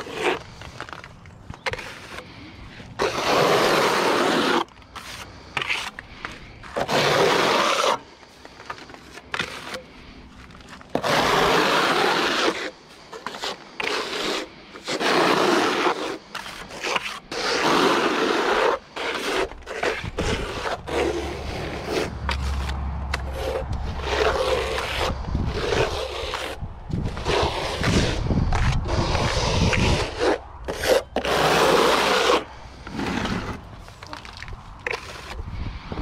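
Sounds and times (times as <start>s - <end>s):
trowel scraping render on wall: 0.0s - 35.8s.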